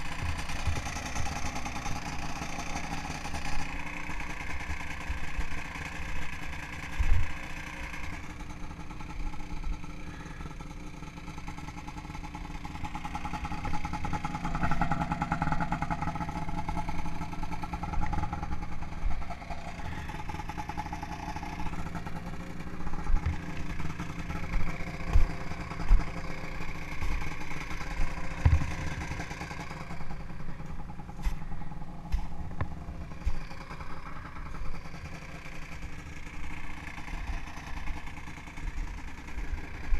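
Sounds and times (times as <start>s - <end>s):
snowmobile engine running: 0.0s - 39.9s
dull thumps: 28.3s - 29.2s.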